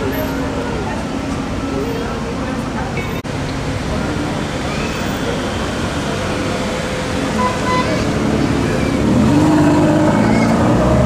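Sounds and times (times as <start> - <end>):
street noise hum: 0.0 - 11.0
car engine running: 3.2 - 11.0.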